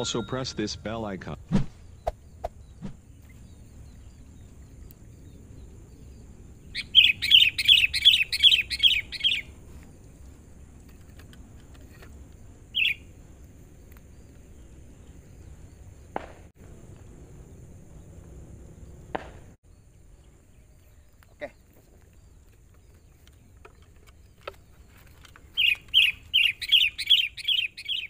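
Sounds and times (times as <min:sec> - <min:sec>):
bird singing bright notes: 0:00.0 - 0:01.1, 0:12.8 - 0:13.0, 0:25.5 - 0:28.0.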